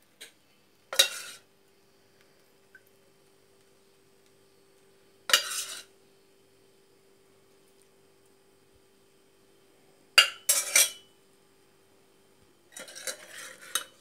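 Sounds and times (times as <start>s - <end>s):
metal ladle clinking on steel pot: 10.2s - 11.1s.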